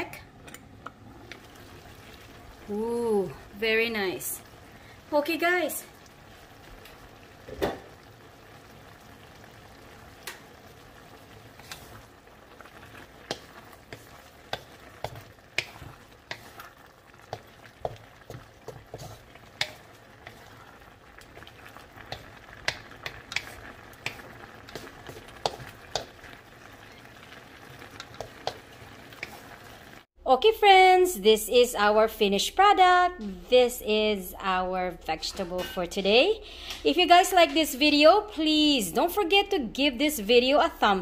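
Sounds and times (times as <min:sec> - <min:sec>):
sauce bubbling and sizzling: 0:00.0 - 0:30.2
spatula knocking and scraping wok: 0:11.5 - 0:12.1, 0:13.0 - 0:26.4, 0:27.8 - 0:29.4, 0:35.2 - 0:36.0.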